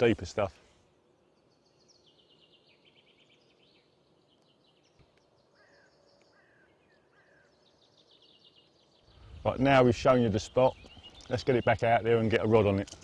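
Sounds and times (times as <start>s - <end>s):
short falling bird calls: 1.9s - 9.4s.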